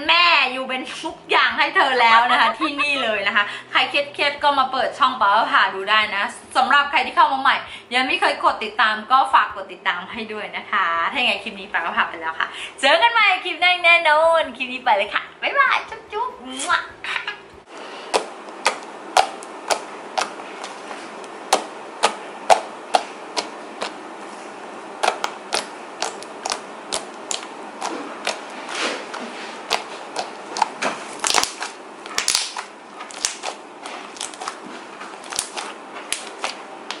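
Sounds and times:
slime clicking and popping: 18.1s - 24.0s, 25.0s - 28.5s, 29.7s - 37.0s.

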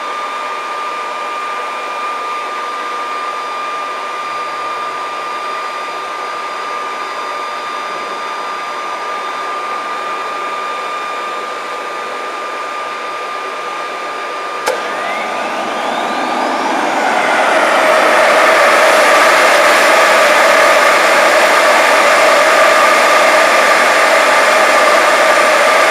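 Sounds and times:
turbine whine rising in pitch: 1.2s - 25.9s
leaf blower air rush: 14.6s - 25.9s.

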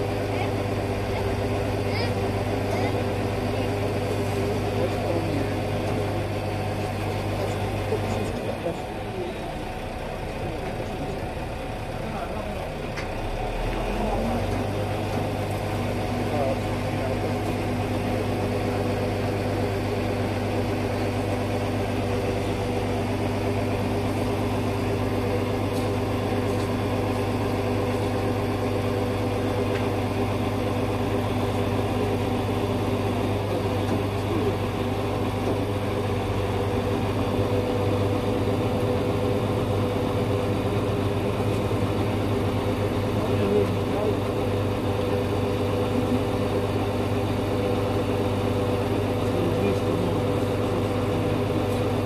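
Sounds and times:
lorry engine idling: 0.0s - 52.0s.

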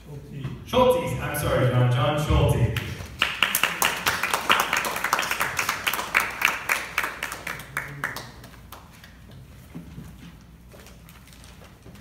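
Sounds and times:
small group applauding: 2.8s - 9.4s.

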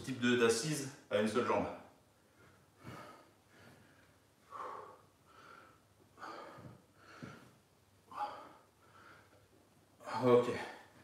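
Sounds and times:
man breathing hard: 2.2s - 11.0s.

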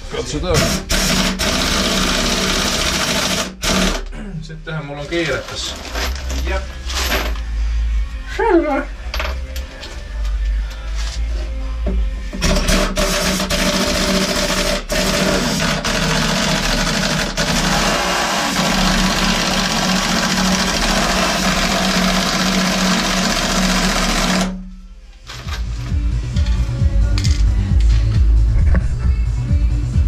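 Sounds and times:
pneumatic tool whirring: 0.6s - 4.0s, 12.4s - 24.5s.

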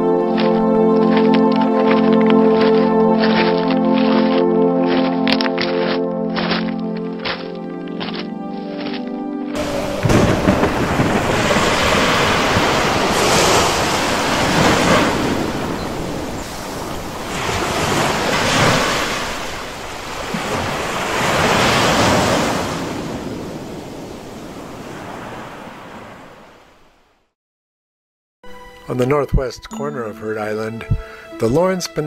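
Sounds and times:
ocean waves breaking: 0.0s - 8.9s, 9.6s - 26.9s
wind buffeting microphone: 9.6s - 24.9s.

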